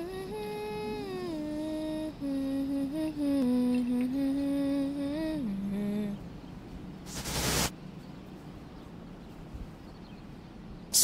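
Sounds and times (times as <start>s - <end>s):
person humming a slow tune: 0.0s - 6.3s.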